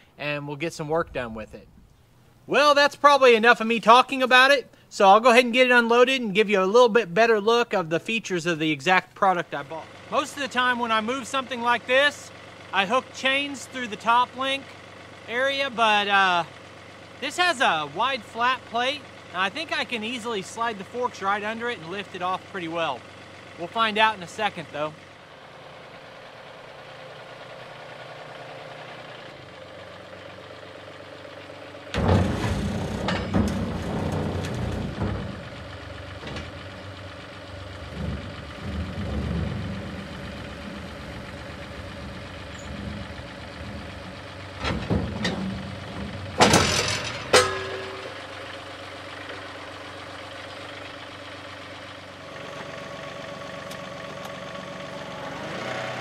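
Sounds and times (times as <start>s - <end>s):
tractor diesel engine running: 0.0s - 56.0s
metal clanks and rattles: 31.9s - 49.8s.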